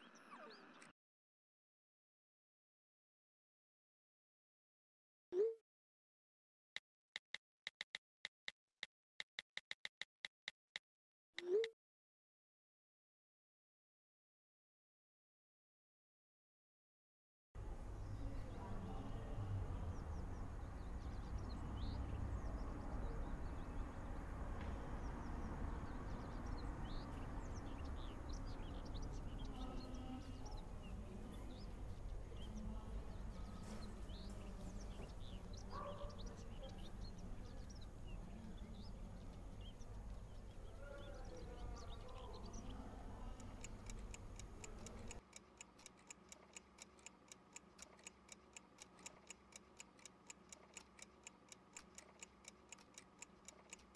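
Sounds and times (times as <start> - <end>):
birds chirping: 17.6 - 53.9
wall clocks ticking: 43.3 - 53.9.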